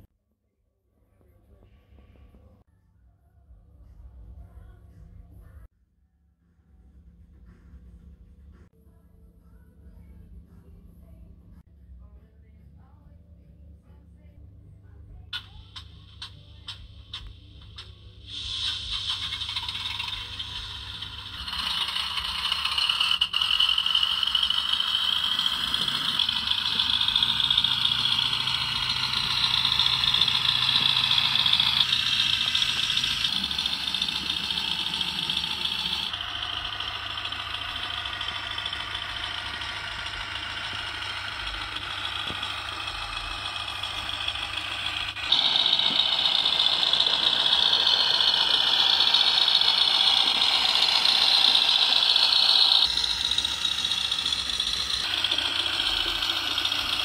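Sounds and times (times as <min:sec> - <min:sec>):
machinery rattling and humming: 0:15.3 - 0:57.0.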